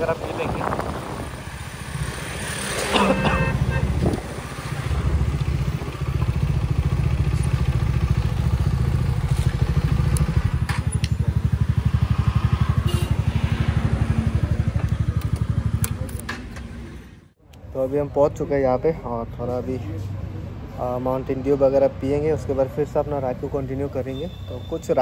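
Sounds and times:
motorcycle engine idling: 4.9 - 13.1.

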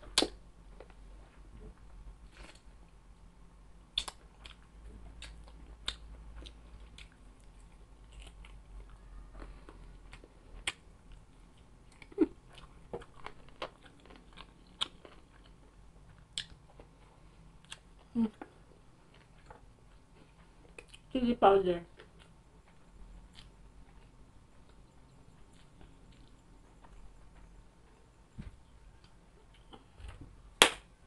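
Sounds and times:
person chewing crunchy food: 3.9 - 21.1, 22.0 - 28.2.

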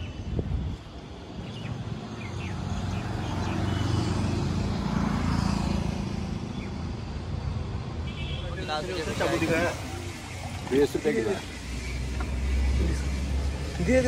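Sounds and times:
motor vehicle passing: 2.1 - 7.7, 8.6 - 14.0.

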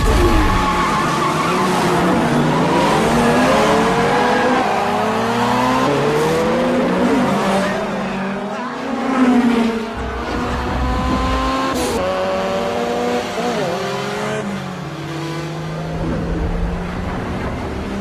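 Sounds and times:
car engines revving hard: 0.0 - 18.0.

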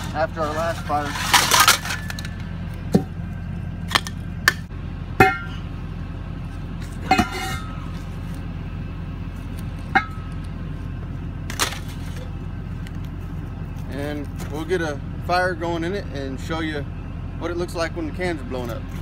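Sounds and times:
steady low hum: 0.0 - 19.0
steel tube clanking on pipe: 5.2 - 5.6, 7.0 - 7.9, 9.9 - 10.4.

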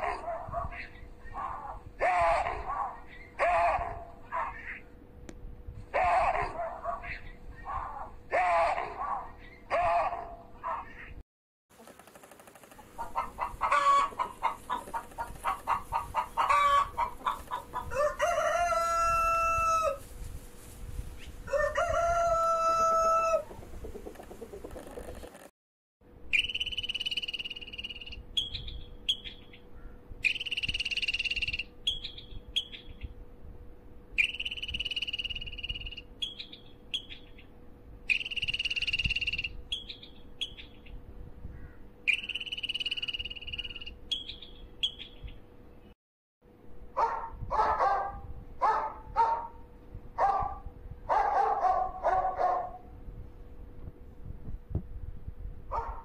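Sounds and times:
chickens clucking: 12.6 - 19.0, 22.6 - 25.5
rooster crowing: 16.5 - 20.0, 21.5 - 23.5
high steady bird call: 26.3 - 33.1, 34.2 - 37.5, 38.1 - 40.8, 41.5 - 45.4.

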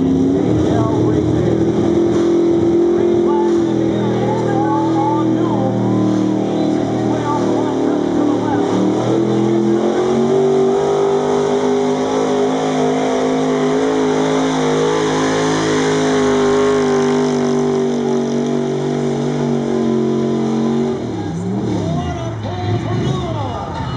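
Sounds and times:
pickup truck engine under load: 0.0 - 23.5.

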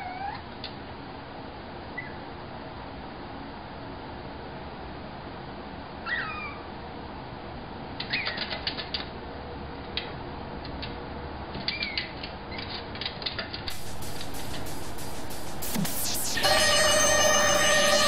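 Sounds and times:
puppy whining: 6.1 - 6.6.

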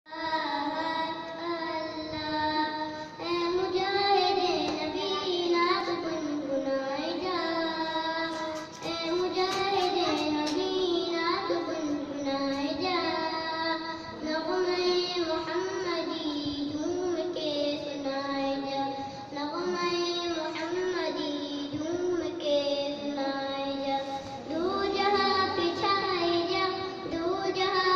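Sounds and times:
boy singing into microphone: 0.1 - 27.9
breaths between phrases: 18.9 - 19.3.

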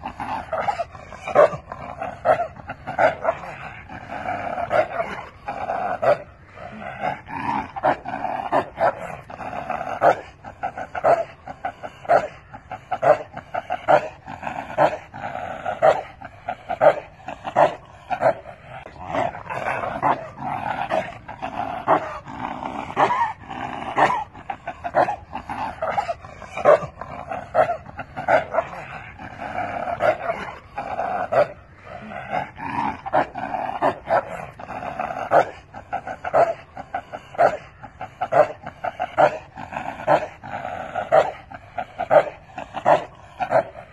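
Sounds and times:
dog barking: 0.6 - 1.6, 15.7 - 16.2.

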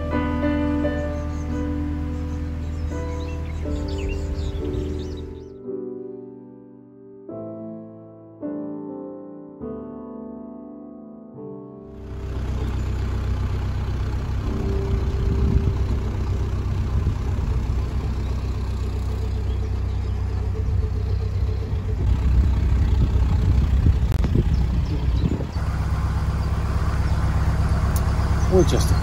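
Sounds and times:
diesel boat engine rumbling: 0.0 - 5.6, 11.9 - 29.0.

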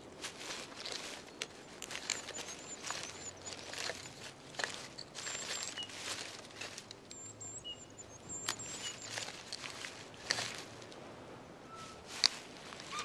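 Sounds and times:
dry twigs crackling and snapping: 0.0 - 11.1, 12.0 - 13.0
thin high bird calls: 0.9 - 10.6, 11.6 - 12.1.

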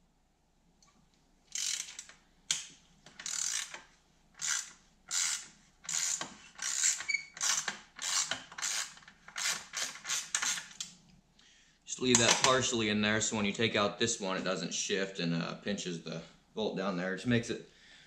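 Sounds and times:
ratchet wrench clicking: 1.5 - 2.2, 3.2 - 3.8, 4.4 - 10.8.

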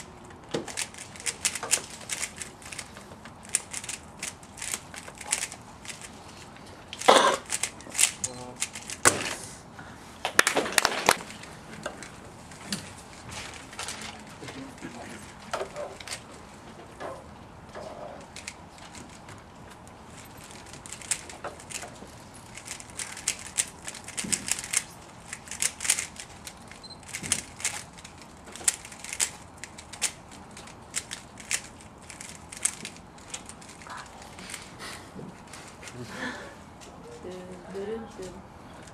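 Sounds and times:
plastic cube clicks and clacks: 0.0 - 6.1, 7.0 - 9.2, 20.4 - 33.8.

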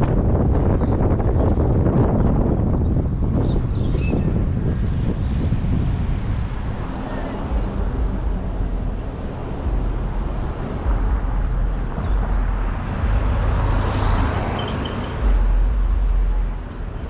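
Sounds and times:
heavy low traffic rumble: 0.0 - 17.0
vehicle passing: 4.4 - 17.0.

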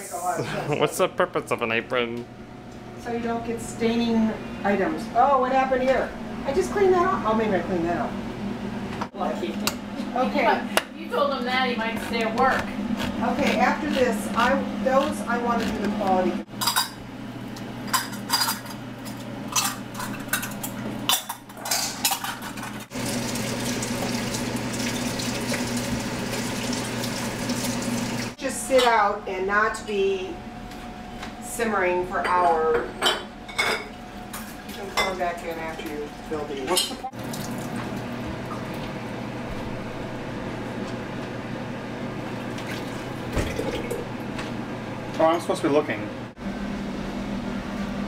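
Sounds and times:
low kitchen hum: 0.0 - 48.0.

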